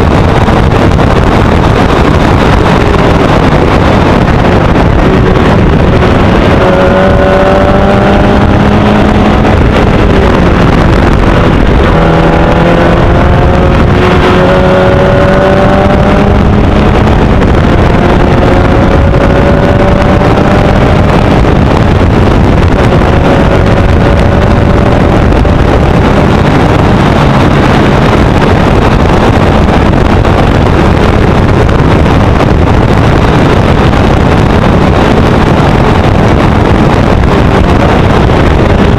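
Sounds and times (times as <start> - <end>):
wind rush on microphone: 0.0 - 38.9
race car engine accelerating: 1.7 - 29.4.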